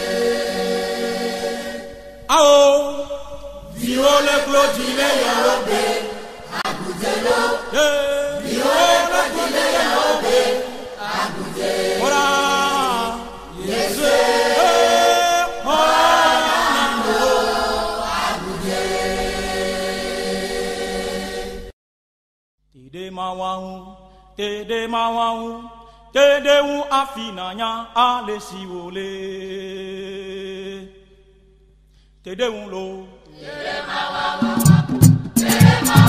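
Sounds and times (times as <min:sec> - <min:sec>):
choir singing gospel: 0:00.0 - 0:21.7, 0:32.5 - 0:36.0.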